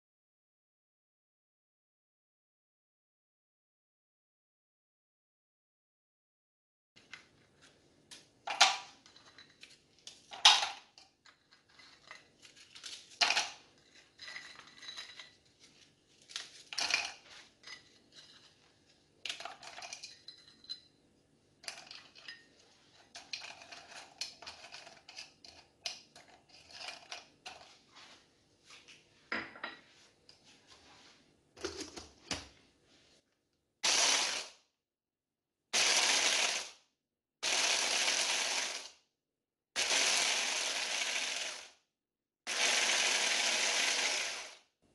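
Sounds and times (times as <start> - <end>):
pieces clattering in plastic bowl: 10.3 - 15.4, 16.3 - 17.8
electric chopper running: 33.8 - 34.5, 35.8 - 36.7, 37.4 - 38.9, 39.8 - 41.7, 42.5 - 44.6.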